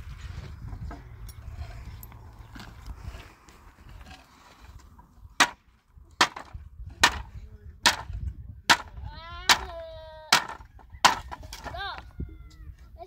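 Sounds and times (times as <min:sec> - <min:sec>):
hand tool striking wooden boards: 0:05.4 - 0:05.6, 0:06.2 - 0:11.8.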